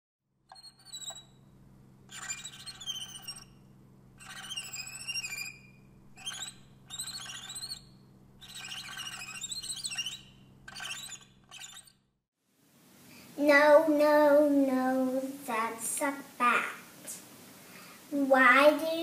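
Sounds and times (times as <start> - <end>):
steady low hum: 0.5 - 12.0
warbling chirping bird calls: 2.1 - 3.6, 4.2 - 12.0.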